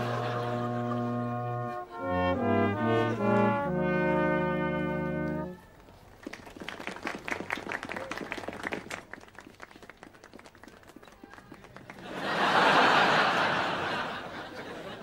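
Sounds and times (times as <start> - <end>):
audience laughter: 0.0 - 1.8, 2.7 - 3.5, 11.9 - 15.0
applause: 6.1 - 13.2.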